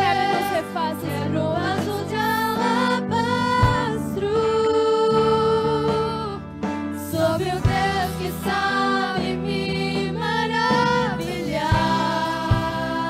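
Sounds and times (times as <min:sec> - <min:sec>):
bass guitar: 0:00.0 - 0:13.0
electric guitar: 0:00.0 - 0:13.0
keyboard: 0:00.0 - 0:13.0
woman singing lead: 0:00.0 - 0:13.0
backing singers: 0:07.1 - 0:13.0
drum hits: 0:11.7 - 0:13.0.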